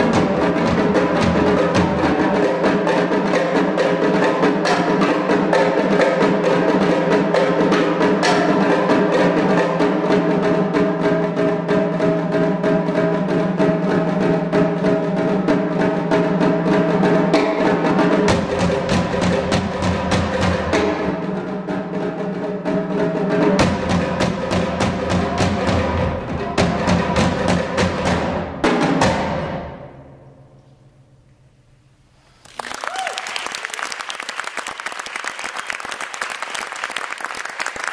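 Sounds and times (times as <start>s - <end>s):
drums and toms played fast: 0.0s - 30.0s
audience applause: 32.3s - 37.9s.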